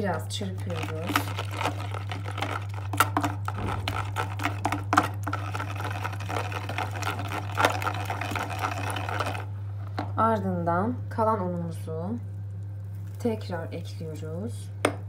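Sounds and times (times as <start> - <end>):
low hum: 0.0 - 6.3
whisk clicking in container: 0.8 - 9.4.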